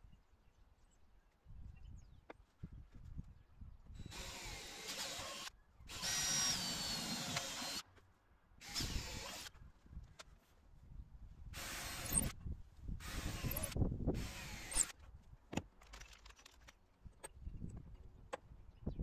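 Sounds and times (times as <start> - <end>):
cordless drill drilling into plywood: 4.0 - 7.8, 8.6 - 9.5, 11.6 - 12.4, 13.0 - 14.9.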